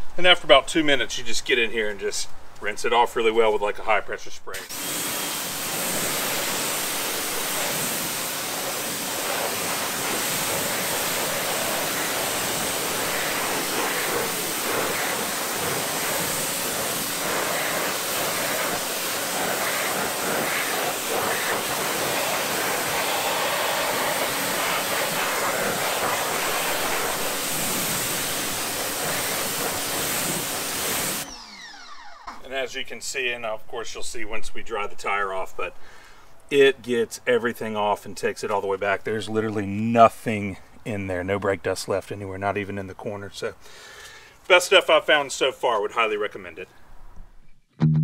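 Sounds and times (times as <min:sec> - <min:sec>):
pressure washer spraying: 0:04.6 - 0:31.5.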